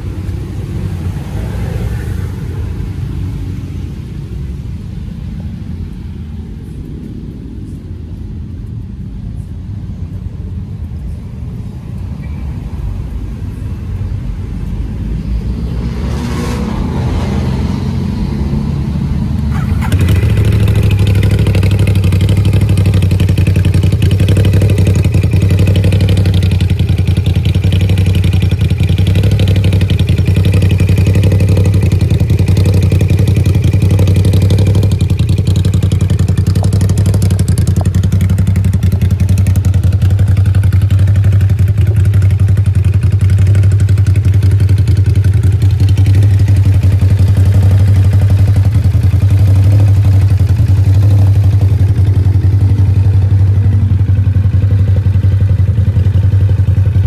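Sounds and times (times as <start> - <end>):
motorcycle engine idling: 19.4 - 57.0.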